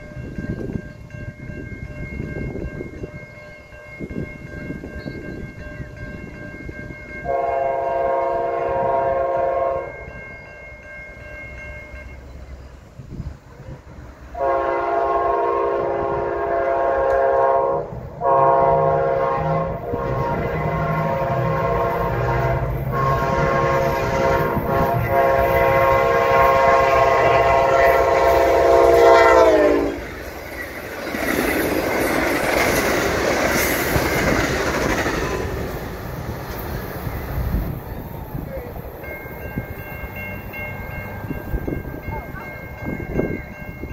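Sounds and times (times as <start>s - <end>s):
train horn blasts: 7.2s - 10.4s, 14.3s - 30.2s
train wheels clattering on rails: 19.8s - 43.9s.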